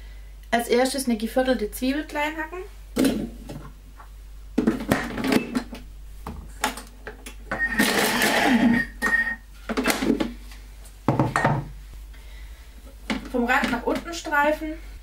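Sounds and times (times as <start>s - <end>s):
food processor blade chopping: 7.6s - 8.6s.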